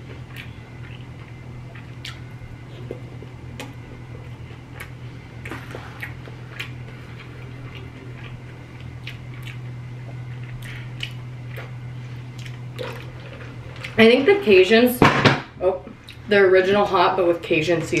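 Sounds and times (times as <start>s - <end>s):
steady low hum: 0.0s - 18.0s
wet chewing mouth sounds: 0.1s - 14.0s
mouth clicks and smacks: 2.0s - 2.2s.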